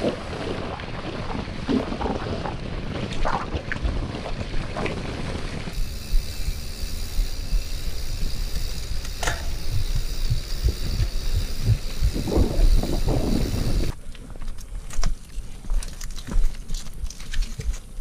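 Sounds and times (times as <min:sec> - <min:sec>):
wind buffeting microphone: 0:00.0 - 0:14.0
bike tyres rumbling on dirt: 0:00.0 - 0:18.0
sharp click: 0:09.0 - 0:09.9.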